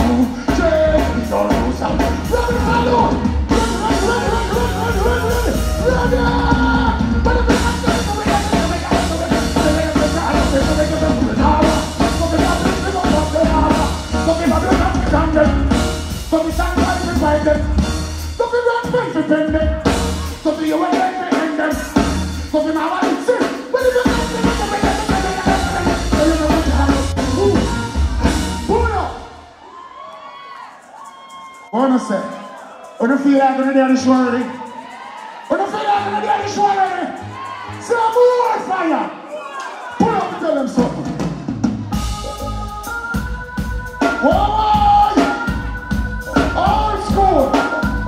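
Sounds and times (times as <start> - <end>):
man singing into a microphone: 0.0 - 15.6, 16.3 - 17.8, 18.4 - 29.1
reggae band playing: 0.0 - 48.0.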